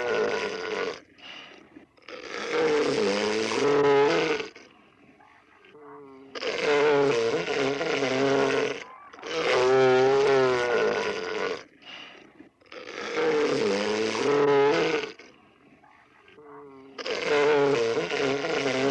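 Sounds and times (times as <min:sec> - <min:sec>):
elephant roaring: 0:05.8 - 0:11.7.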